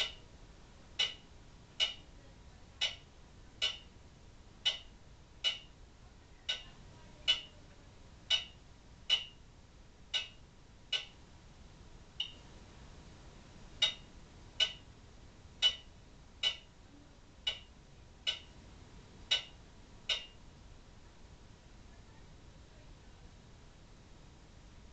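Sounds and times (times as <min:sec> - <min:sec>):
clock ticking: 0:00.0 - 0:00.3, 0:01.0 - 0:02.2, 0:02.8 - 0:03.9, 0:04.6 - 0:05.8, 0:06.5 - 0:07.6, 0:08.3 - 0:09.4, 0:10.1 - 0:11.2, 0:12.2 - 0:12.4, 0:13.8 - 0:14.9, 0:15.6 - 0:16.8, 0:17.4 - 0:18.6, 0:19.3 - 0:20.4.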